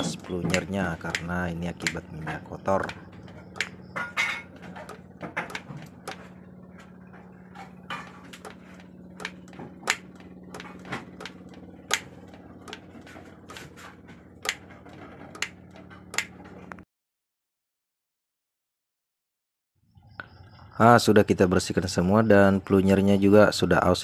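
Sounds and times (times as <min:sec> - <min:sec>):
steady low hum: 0:00.0 - 0:16.8, 0:19.9 - 0:24.0
metallic clicks and taps: 0:00.5 - 0:02.0, 0:15.3 - 0:16.4.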